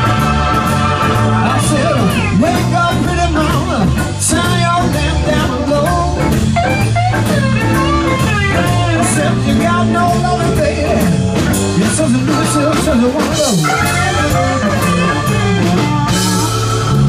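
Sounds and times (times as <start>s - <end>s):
bass and drums: 0.0s - 17.0s.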